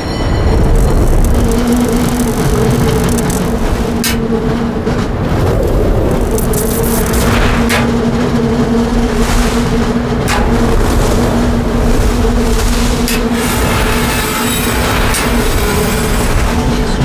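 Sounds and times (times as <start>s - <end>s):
mine cart rolling on rails: 0.0s - 17.0s
sharp rail clacks: 0.5s - 8.7s, 10.2s - 11.4s.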